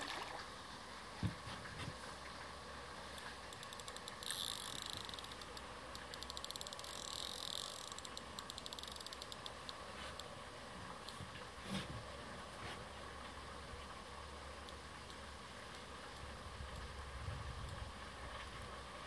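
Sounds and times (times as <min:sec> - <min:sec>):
fishing reel clicking rapidly: 0:03.5 - 0:09.8.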